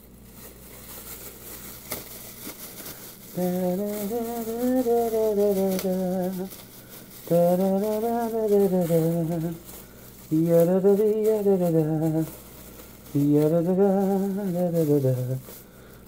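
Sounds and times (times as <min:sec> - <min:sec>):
faint rustles and clicks: 0:00.0 - 0:16.0
man humming: 0:03.4 - 0:06.5, 0:07.3 - 0:09.6, 0:13.2 - 0:15.5.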